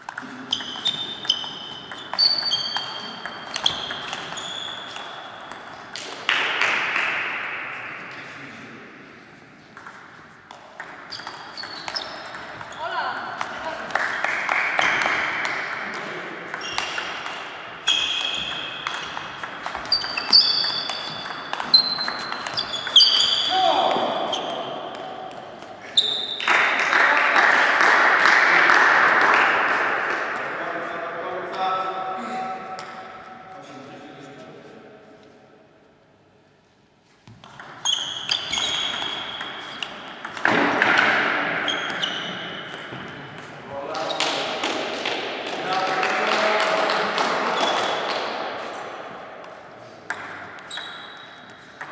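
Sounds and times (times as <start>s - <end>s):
shoes squeaking on floor: 0.0s - 5.8s, 11.0s - 13.1s, 16.5s - 17.2s, 17.8s - 24.8s, 25.8s - 26.5s, 37.1s - 40.6s, 41.6s - 43.2s, 50.6s - 51.8s.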